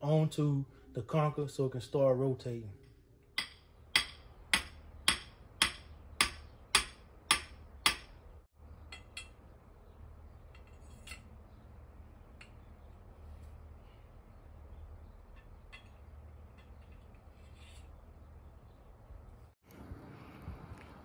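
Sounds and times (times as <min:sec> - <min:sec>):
hammer striking metal stake: 0:03.4 - 0:08.2.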